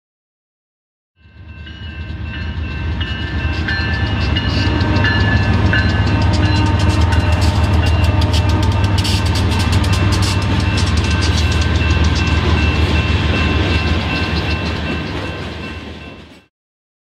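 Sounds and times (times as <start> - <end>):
freight train rumbling: 1.2 - 16.5
rapid clicks: 5.6 - 12.5.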